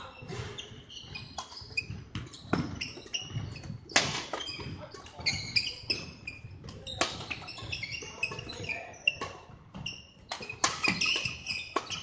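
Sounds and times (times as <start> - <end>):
shoes squeaking on court floor: 0.0 - 12.0
racket hitting shuttlecock: 2.2 - 4.4, 5.7 - 9.4, 10.2 - 12.0.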